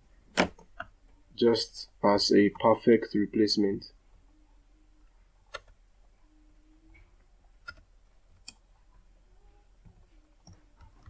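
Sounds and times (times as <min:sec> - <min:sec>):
low steady hum: 0:00.0 - 0:11.0
computer mouse clicks: 0:05.5 - 0:05.8, 0:07.6 - 0:08.6.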